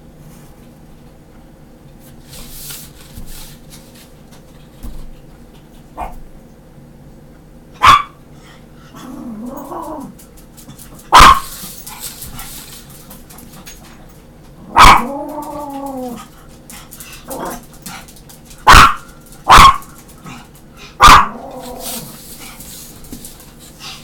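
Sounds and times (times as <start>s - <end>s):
small dog barking: 6.0s - 6.2s, 7.8s - 8.2s, 11.1s - 11.5s, 14.7s - 15.2s, 18.6s - 19.9s, 21.0s - 21.9s.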